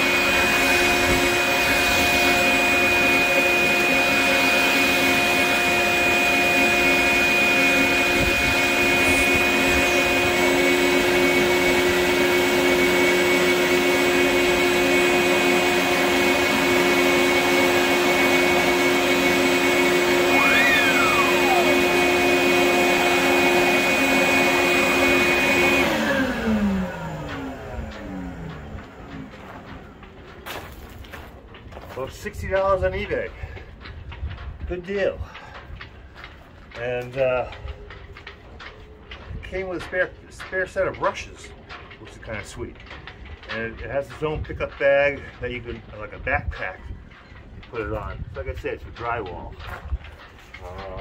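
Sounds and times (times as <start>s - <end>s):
vacuum motor spinning down: 0.0s - 29.2s
shop vacuum whining: 0.0s - 30.4s.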